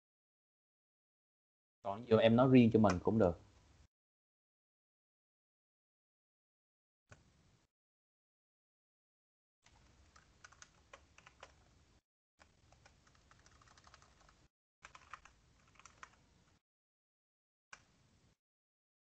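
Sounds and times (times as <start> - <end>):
typing on a keyboard: 9.7 - 11.6, 12.4 - 16.2.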